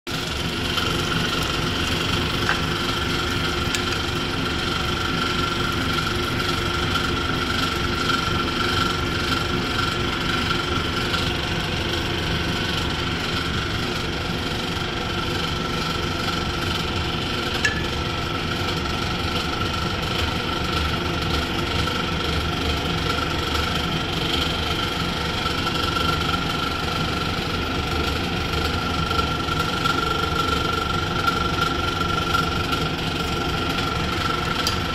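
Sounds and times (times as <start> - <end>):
mechanical hum: 0.1 - 34.9
high whine: 17.5 - 18.5.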